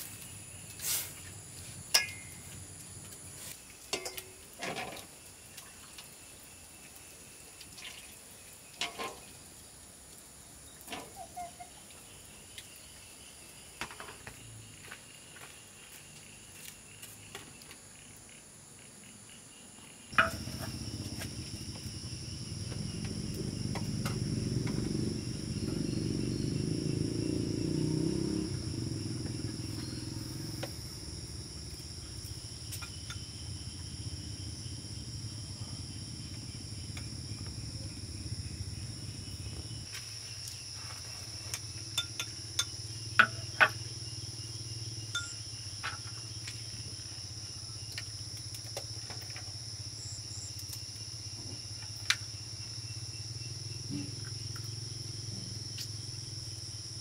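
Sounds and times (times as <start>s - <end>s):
crickets chirping: 0.0s - 57.0s
sharp knocks: 20.2s - 20.8s.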